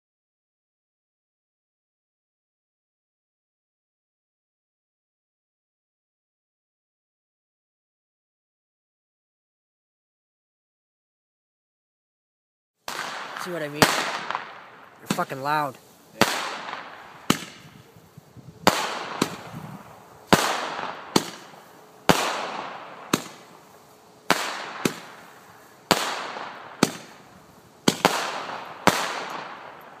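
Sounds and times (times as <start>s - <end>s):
roman candle firing bangs: 12.9s - 18.0s, 18.6s - 30.0s.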